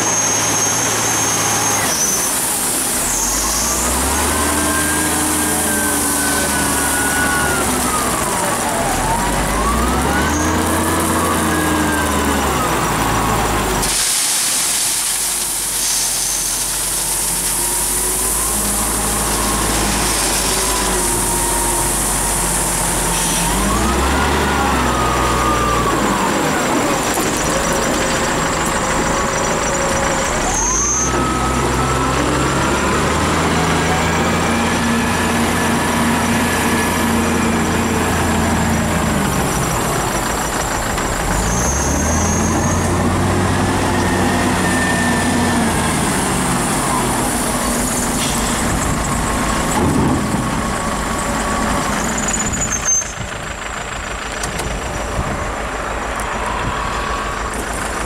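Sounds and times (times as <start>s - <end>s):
diesel engine revving: 0.0s - 58.0s
crushed stone pouring into truck: 13.8s - 18.6s.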